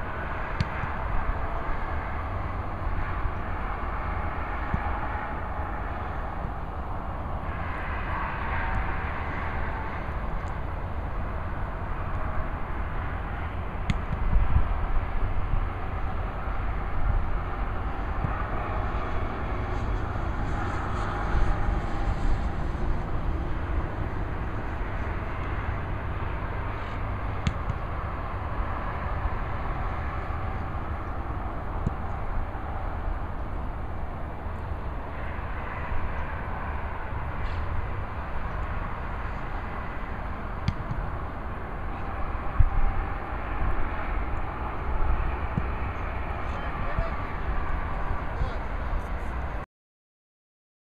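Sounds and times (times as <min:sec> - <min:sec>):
low wind buffeting: 0:00.0 - 0:49.6
road traffic rumble and hiss: 0:00.0 - 0:49.6
football being kicked: 0:40.6 - 0:41.1.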